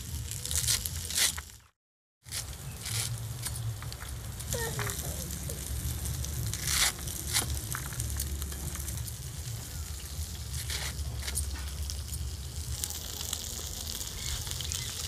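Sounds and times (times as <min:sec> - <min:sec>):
blade cutting spinach stalks: 0:00.4 - 0:01.6, 0:02.2 - 0:05.2, 0:06.1 - 0:08.7, 0:10.5 - 0:11.8
low rumble: 0:03.9 - 0:12.8.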